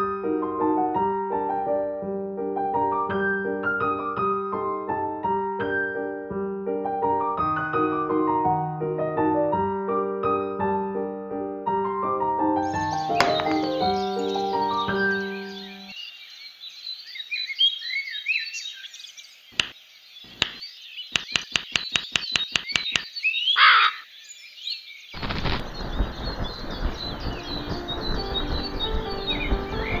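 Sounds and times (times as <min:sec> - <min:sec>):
music with sustained notes: 0:00.0 - 0:16.0, 0:26.9 - 0:30.0
songbirds chirping: 0:12.6 - 0:30.0
crow pecking shell on stone: 0:21.2 - 0:23.1
crow cawing: 0:23.6 - 0:24.1.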